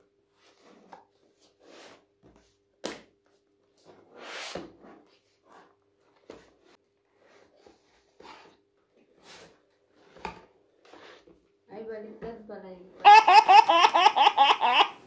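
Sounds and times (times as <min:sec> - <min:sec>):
cardboard rustling and scraping: 0:00.3 - 0:02.6, 0:03.8 - 0:11.4.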